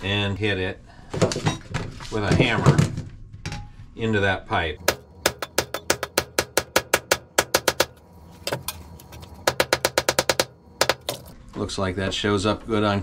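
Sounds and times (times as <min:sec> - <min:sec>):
hammer tapping on sheet metal: 0:04.8 - 0:08.0, 0:09.4 - 0:11.2.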